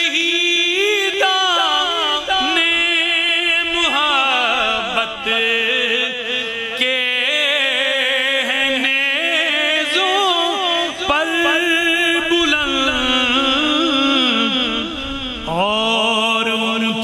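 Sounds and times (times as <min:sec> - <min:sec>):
man chanting devotional verse: 0:00.0 - 0:17.0.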